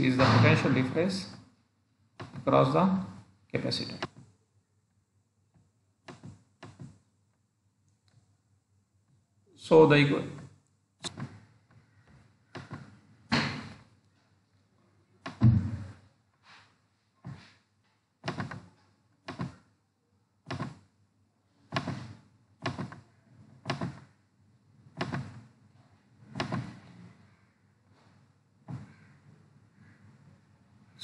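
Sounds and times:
dull computer clicks: 0:02.2 - 0:04.3, 0:06.0 - 0:07.0, 0:10.3 - 0:14.0, 0:18.2 - 0:19.7, 0:20.5 - 0:20.9, 0:21.7 - 0:24.2, 0:24.9 - 0:25.5, 0:26.3 - 0:26.9.

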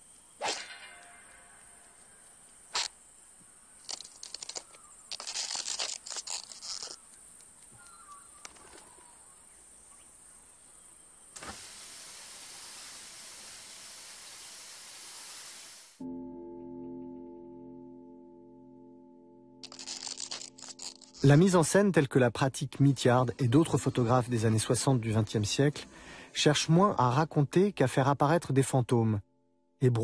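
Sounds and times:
crackling clicks: 0:01.8 - 0:08.9, 0:19.6 - 0:21.3
steady hiss: 0:09.4 - 0:16.0
sustained music notes: 0:16.0 - 0:20.7.

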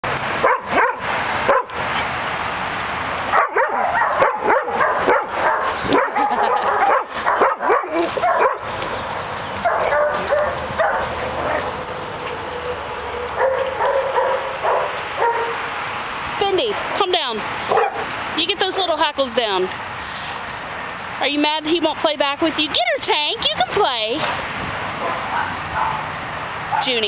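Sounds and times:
dog barking: 0:00.4 - 0:01.8, 0:03.3 - 0:08.7, 0:09.6 - 0:11.8, 0:13.4 - 0:15.6, 0:17.7 - 0:18.1, 0:25.0 - 0:26.1
dog giving higher calls: 0:03.3 - 0:15.8.

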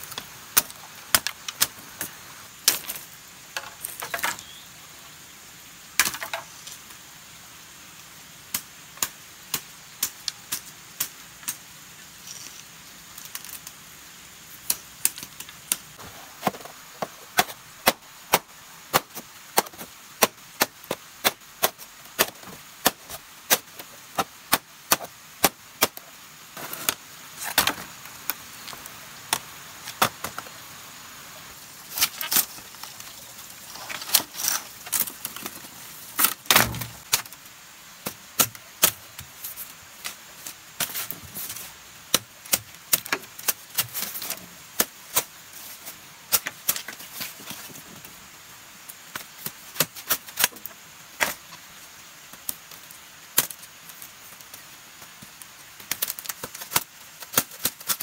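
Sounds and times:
bamboo being chopped: 0:16.4 - 0:26.0, 0:26.6 - 0:27.9, 0:36.2 - 0:37.4, 0:55.9 - 0:58.0.

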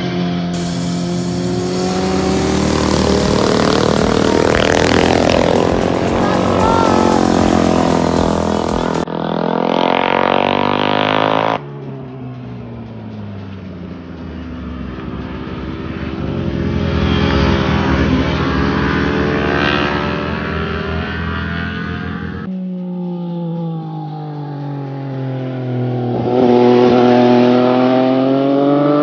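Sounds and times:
motorcycle engines revving: 0:00.6 - 0:11.6, 0:25.4 - 0:29.0.

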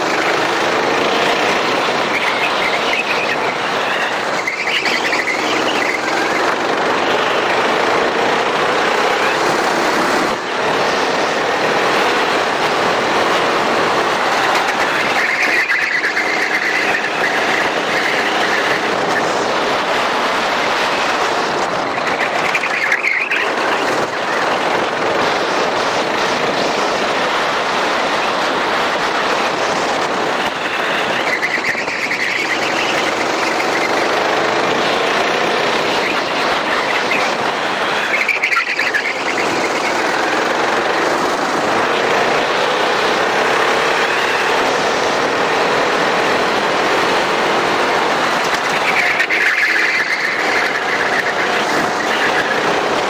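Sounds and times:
tyre squeals: 0:00.0 - 0:06.8, 0:14.3 - 0:19.4, 0:21.8 - 0:24.5, 0:30.4 - 0:41.2, 0:42.1 - 0:53.0
kart engine running hard: 0:00.0 - 0:53.0
wind rush: 0:16.0 - 0:53.0.

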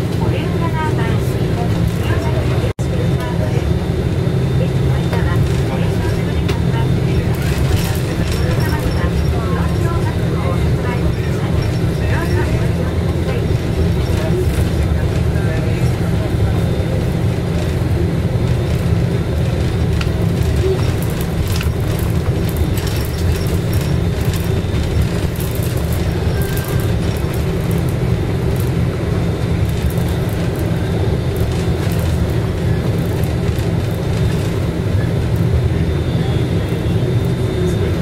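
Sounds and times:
bus engine and road rumble: 0:00.0 - 0:38.0
clicks and rattles: 0:18.7 - 0:27.9.

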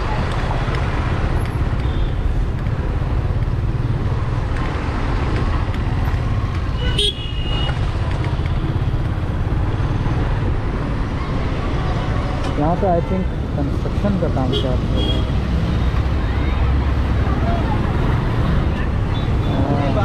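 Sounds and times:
vehicle horn toot: 0:06.8 - 0:07.7.

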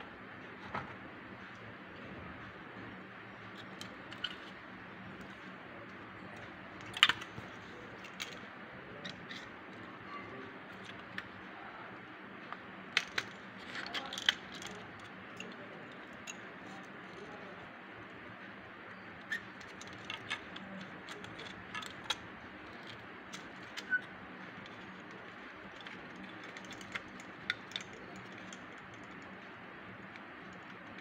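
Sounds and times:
small plastic parts clicking: 0:06.3 - 0:09.8, 0:12.5 - 0:17.4, 0:19.2 - 0:31.0.

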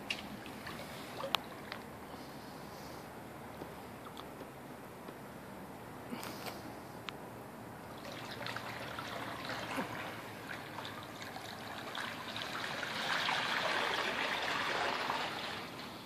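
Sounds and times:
water rushing and trickling: 0:00.1 - 0:02.2, 0:07.8 - 0:16.0.

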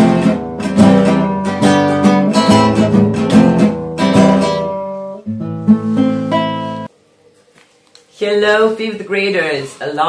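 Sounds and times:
acoustic guitar strumming: 0:00.0 - 0:06.9.

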